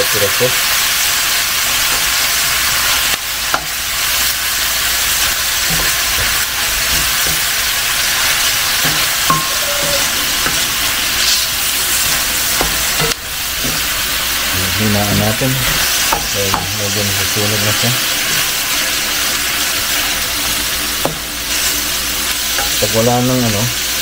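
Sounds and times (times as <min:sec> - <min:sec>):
meat and onions sizzling in pan: 0:00.0 - 0:24.0
wooden spatula scraping pan: 0:05.1 - 0:14.0.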